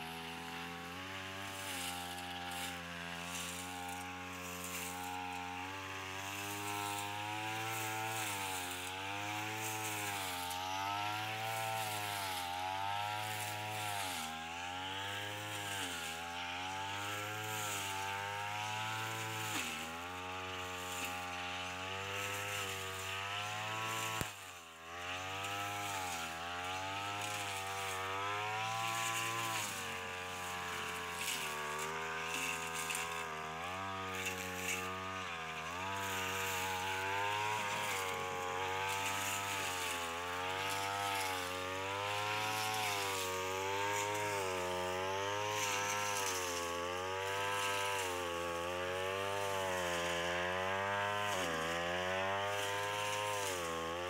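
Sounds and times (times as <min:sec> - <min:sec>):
brush cutter engine cutting grass: 0:00.0 - 0:54.0.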